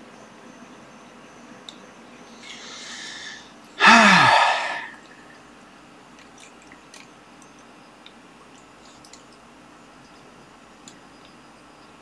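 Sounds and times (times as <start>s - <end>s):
hissing breath in: 2.4s - 5.1s
man's breathy vocal burst: 2.5s - 5.0s.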